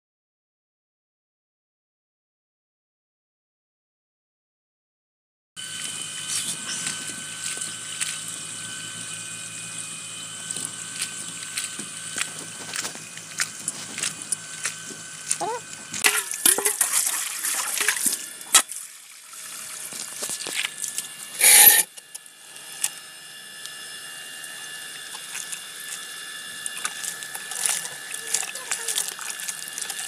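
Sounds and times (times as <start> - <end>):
hose water pouring: 15.8 - 21.9, 25.0 - 30.0
water splashing in steel bowl: 16.0 - 19.7, 26.8 - 30.0.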